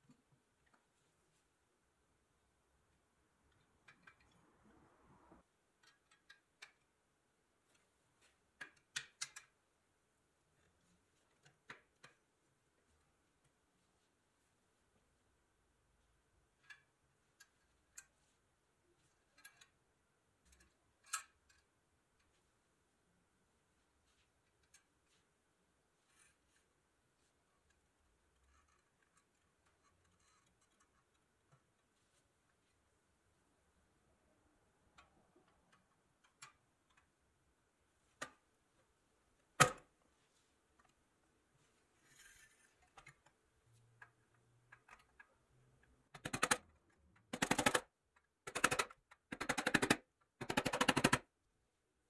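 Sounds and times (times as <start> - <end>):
metal toy parts clicking: 20.4 - 21.7, 46.2 - 46.7.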